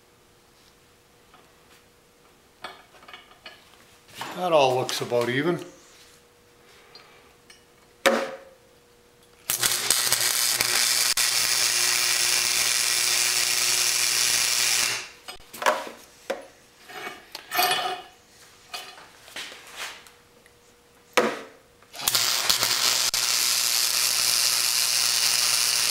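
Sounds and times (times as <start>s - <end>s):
welder crackling sizzle: 9.4s - 15.4s, 21.9s - 25.9s.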